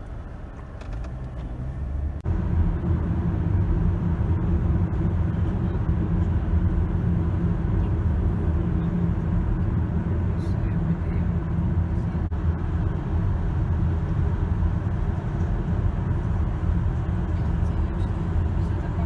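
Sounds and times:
car road and engine noise: 0.0s - 19.0s.

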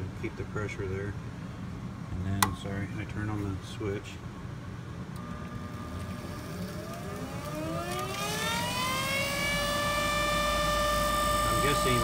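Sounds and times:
furnace motor whine rising: 5.0s - 12.0s.

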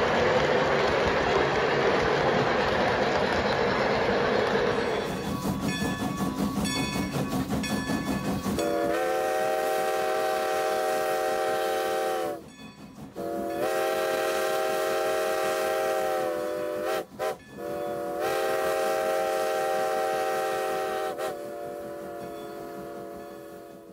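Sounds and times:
train clicking and rumble: 0.0s - 23.9s
steam locomotive whistle blasts: 8.6s - 12.5s, 13.2s - 23.9s.

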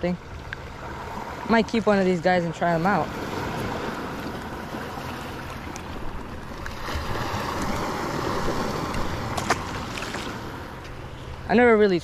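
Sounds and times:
small waves lapping: 0.0s - 12.0s.

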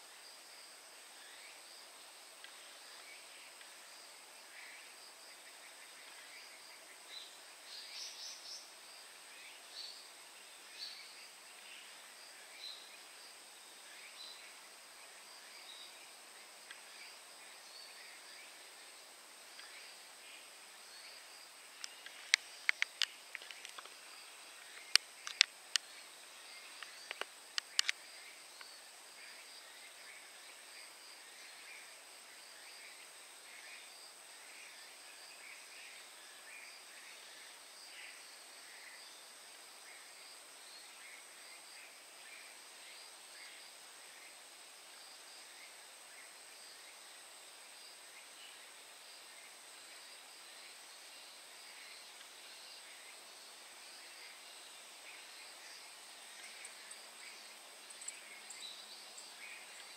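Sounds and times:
faint chirps: 0.0s - 47.2s, 47.8s - 59.9s
sharp clicks: 21.8s - 23.9s, 26.8s - 28.0s.

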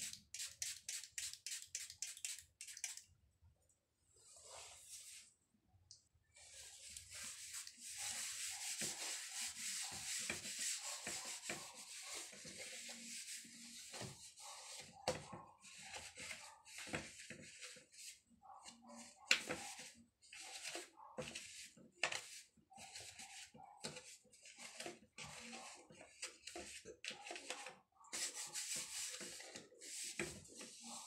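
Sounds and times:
wipe scrubbing a table: 6.4s - 15.0s, 28.1s - 31.0s.

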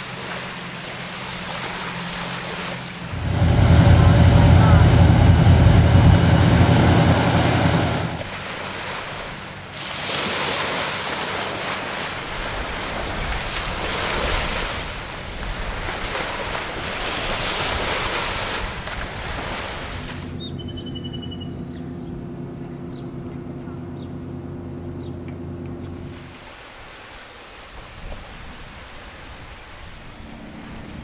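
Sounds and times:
ferry engines rumbling: 0.0s - 9.8s, 19.1s - 26.6s
low hum: 2.4s - 8.4s, 20.2s - 26.4s
wind on microphone: 2.9s - 8.3s.

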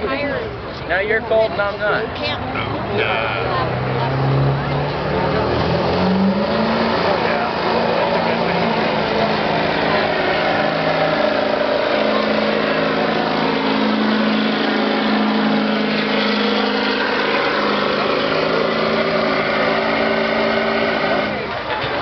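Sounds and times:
diesel engine at high revs: 1.6s - 22.0s.

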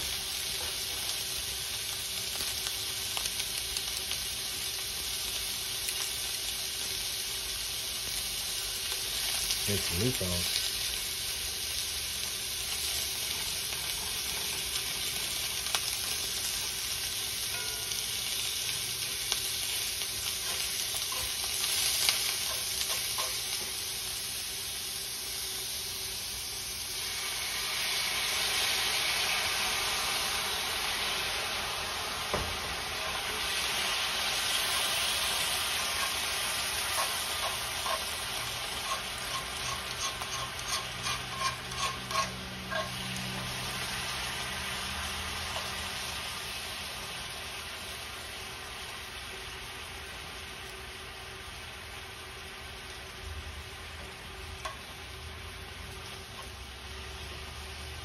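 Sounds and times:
beef sizzling in a skillet: 0.0s - 58.0s
metal tongs clicking on pan: 36.9s - 38.1s, 38.8s - 43.0s.

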